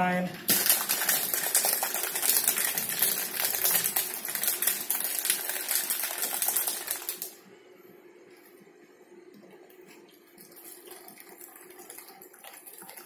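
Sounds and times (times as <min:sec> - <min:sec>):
drink shaker rattling: 0:00.5 - 0:07.3.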